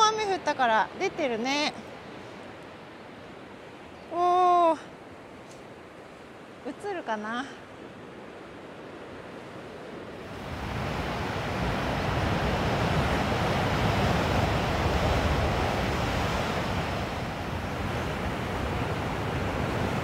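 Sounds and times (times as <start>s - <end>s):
waves breaking on rocky shore: 9.8s - 20.0s.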